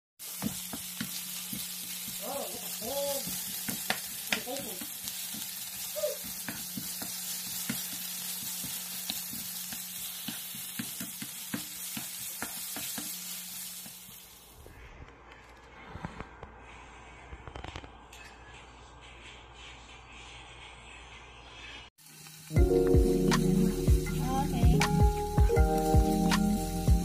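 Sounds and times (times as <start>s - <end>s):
garlic and onion sizzling: 0.2s - 14.6s, 22.0s - 27.0s.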